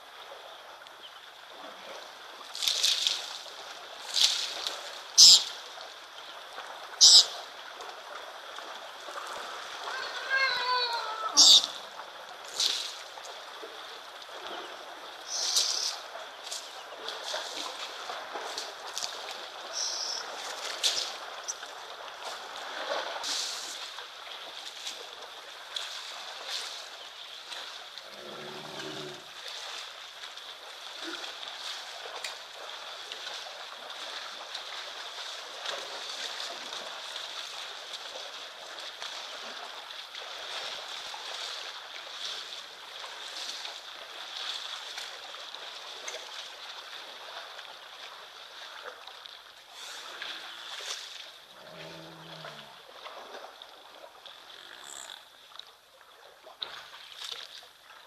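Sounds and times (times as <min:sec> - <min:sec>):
water splashing and sloshing: 0:00.0 - 0:58.0
buffalo low call: 0:51.6 - 0:52.7.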